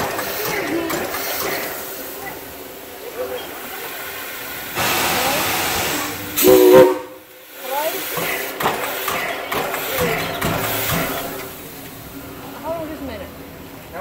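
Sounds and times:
steam hissing: 0.0s - 12.8s
steam whistle blast: 6.4s - 7.2s.

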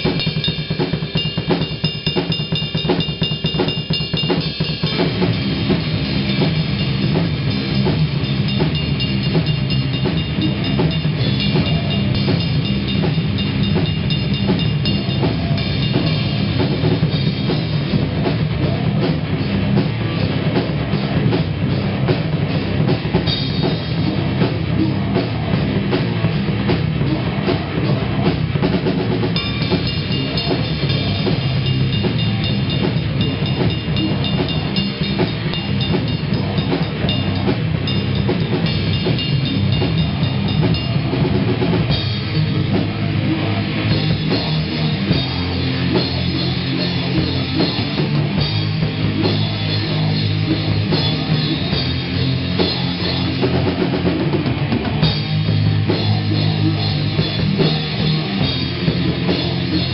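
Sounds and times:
drums and cymbals: 0.0s - 59.9s
electric guitar: 0.0s - 59.9s
rock band playing: 0.0s - 59.9s.

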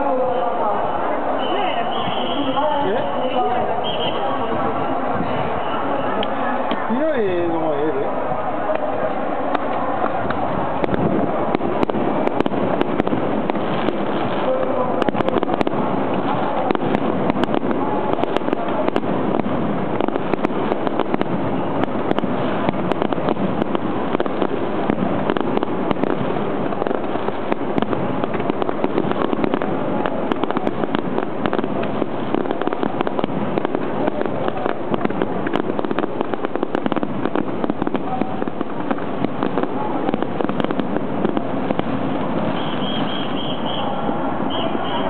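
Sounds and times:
fireworks bursting and crackling: 0.0s - 45.0s.

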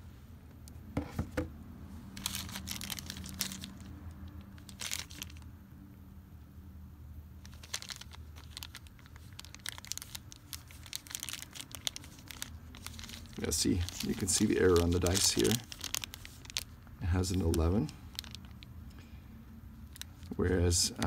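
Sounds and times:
plastic bag crinkling: 2.2s - 5.5s, 7.4s - 18.7s, 19.8s - 20.6s.

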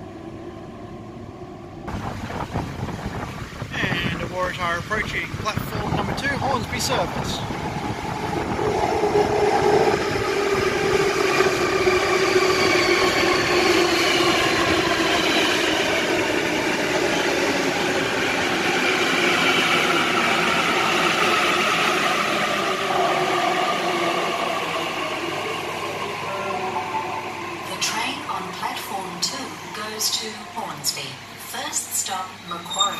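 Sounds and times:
wheels rumbling on rails: 0.0s - 21.0s.

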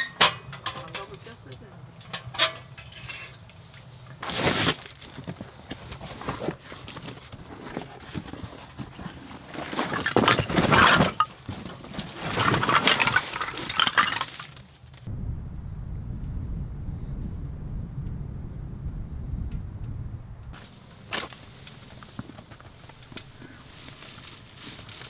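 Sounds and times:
firewood clattering onto pile: 0.0s - 1.4s, 4.3s - 15.1s.

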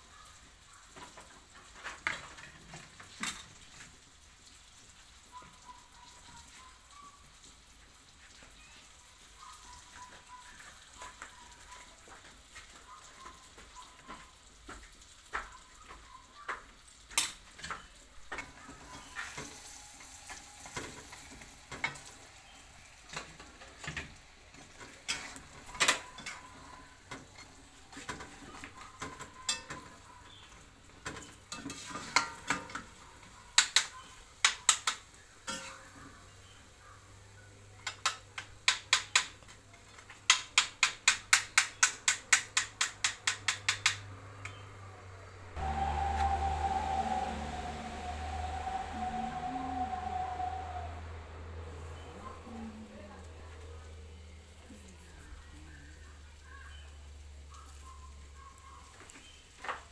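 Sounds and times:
food frying in oil: 0.0s - 44.9s
low steady hum: 45.4s - 56.2s.

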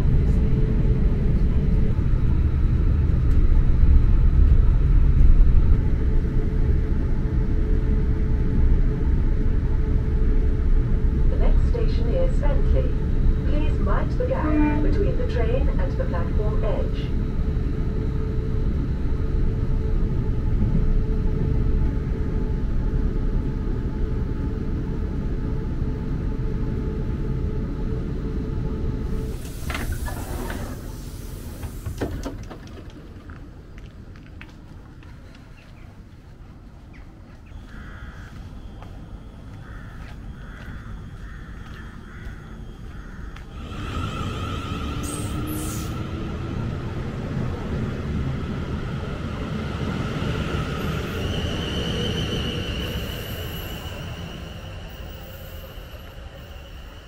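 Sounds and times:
train rumble and whine: 0.0s - 57.0s
train motor whining: 28.8s - 33.4s, 43.4s - 57.0s
hiss of air: 29.2s - 32.2s, 44.9s - 46.0s
train doors clunking open: 29.2s - 33.4s.

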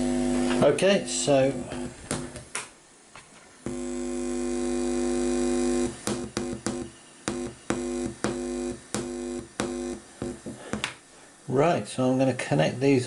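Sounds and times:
speaker buzz: 0.0s - 2.5s, 3.6s - 11.0s.

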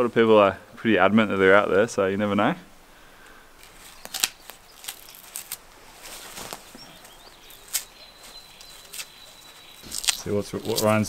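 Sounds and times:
bark cracking: 3.2s - 11.0s
faint bird chirps: 3.3s - 5.6s, 6.2s - 11.0s.

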